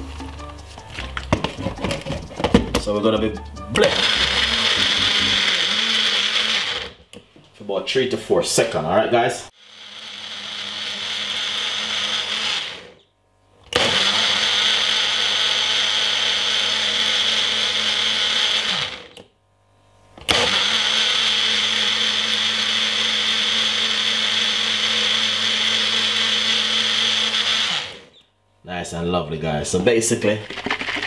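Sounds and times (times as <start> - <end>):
blender running: 3.7 - 7.1, 9.5 - 13.0, 13.7 - 19.2, 20.2 - 28.2, 30.4 - 31.0.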